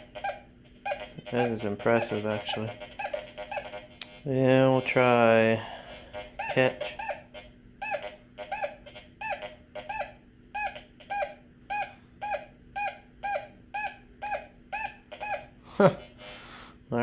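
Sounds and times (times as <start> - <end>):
faint steady hum: 0.0 - 17.0
metal detector beeping: 6.2 - 7.2.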